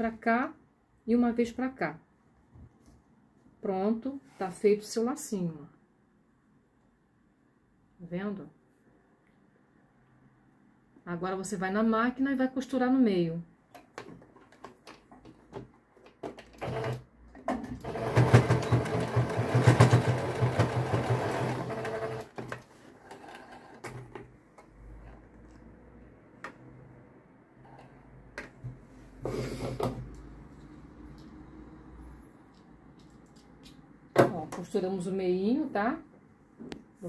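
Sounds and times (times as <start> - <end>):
sewing machine stitching: 16.3 - 24.1.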